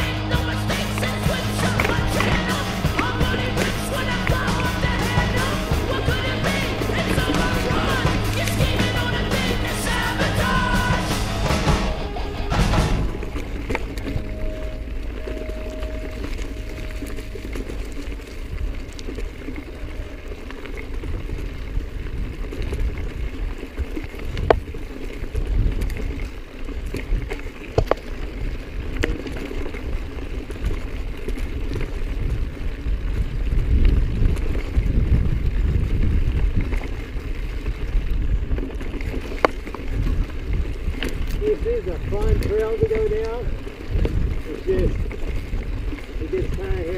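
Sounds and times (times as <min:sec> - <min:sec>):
tyres over dirt and rock: 0:00.0 - 0:46.9
wind rumble on microphone: 0:12.0 - 0:46.9
bike clicks and knocks: 0:26.8 - 0:31.8.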